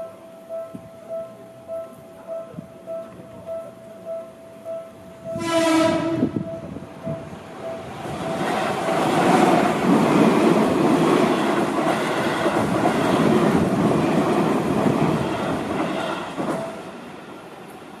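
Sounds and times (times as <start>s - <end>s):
crossing warning bell ringing: 0.0s - 9.9s
train wheels on track: 4.9s - 18.0s.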